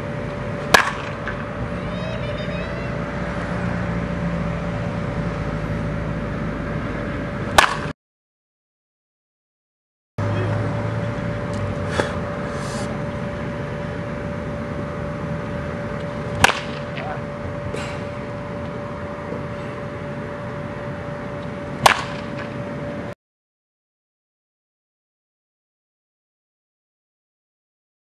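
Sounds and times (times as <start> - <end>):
baseball bat cracking ball: 0.6 - 1.6, 7.5 - 7.9, 16.0 - 17.2, 21.8 - 22.6
faint steady hum: 10.2 - 23.2.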